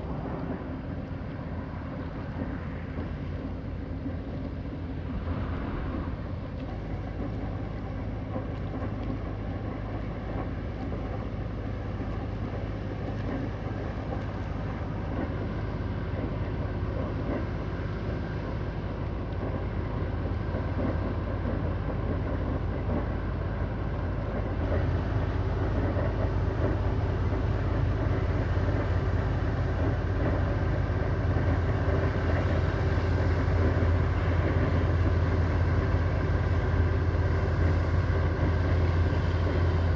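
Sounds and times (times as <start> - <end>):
diesel engine droning: 4.4 - 8.0.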